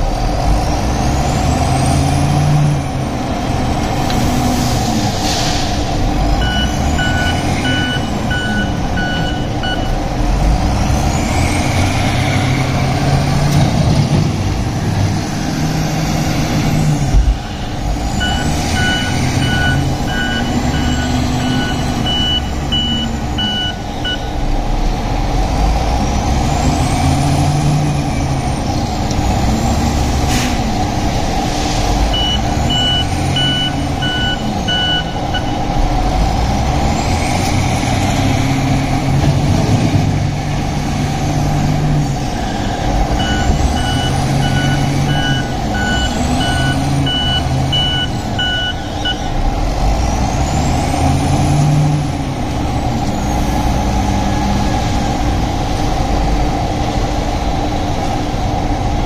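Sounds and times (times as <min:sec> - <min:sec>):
wheel loader engine revving: 0:00.0 - 0:59.0
reversing alarm beeping: 0:06.4 - 0:10.0, 0:17.5 - 0:24.4, 0:32.1 - 0:35.7, 0:42.4 - 0:49.4.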